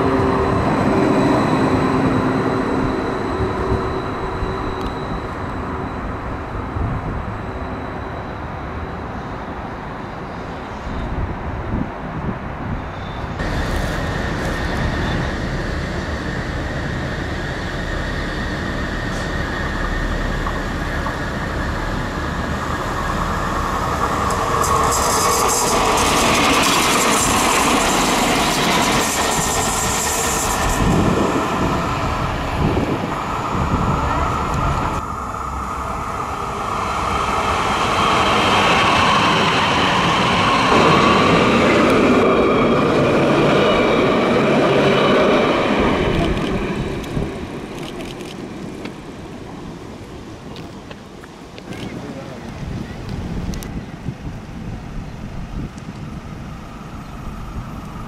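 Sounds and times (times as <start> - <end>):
tram wheels rolling on rails: 0.0 - 58.0
tram hiss: 13.2 - 58.0
tram motor hum: 13.4 - 54.0.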